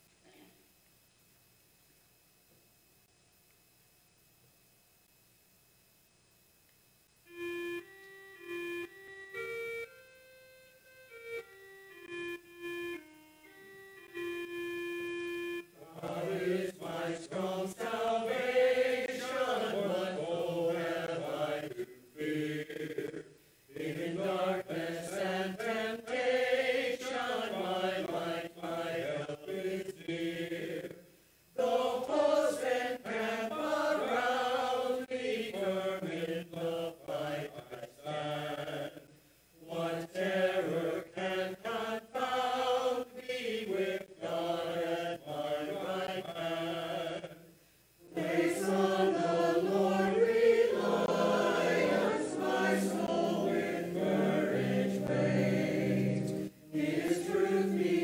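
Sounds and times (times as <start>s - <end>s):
held keyboard chord: 7.3s - 15.8s, 48.2s - 58.0s
mixed choir singing: 15.8s - 31.0s, 31.6s - 47.5s, 48.1s - 58.0s.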